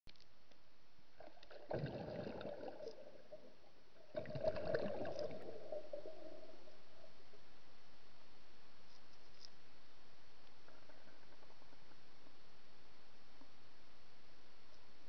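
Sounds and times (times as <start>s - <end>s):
faint steady hiss: 0.1s - 15.0s
water sloshing and gurgling: 1.2s - 7.4s.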